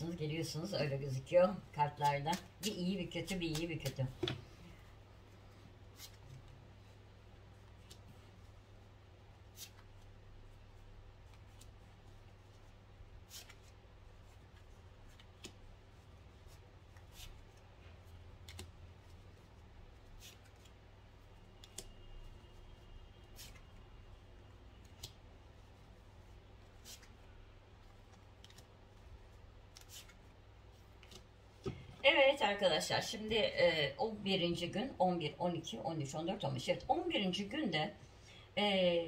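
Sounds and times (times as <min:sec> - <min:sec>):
low steady hum: 0:00.0 - 0:39.0
cards laid on a table: 0:02.0 - 0:04.9, 0:24.6 - 0:32.0.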